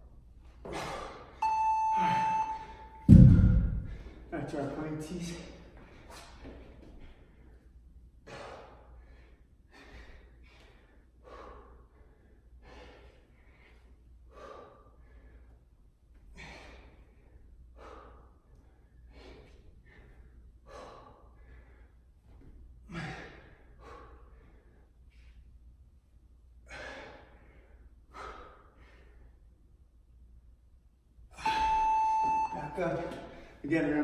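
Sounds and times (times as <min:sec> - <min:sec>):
man breathing hard: 0:00.6 - 0:01.4, 0:08.2 - 0:22.1, 0:22.8 - 0:25.4, 0:26.6 - 0:29.5.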